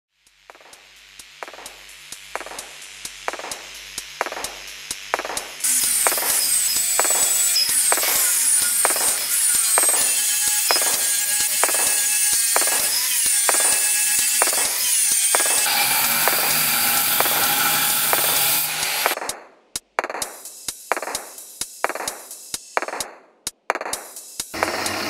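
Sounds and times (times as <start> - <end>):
angle grinder cutting steel: 0.5 - 19.2, 24.6 - 25.0
chop saw cutting steel rod: 0.5 - 19.4, 24.5 - 25.0.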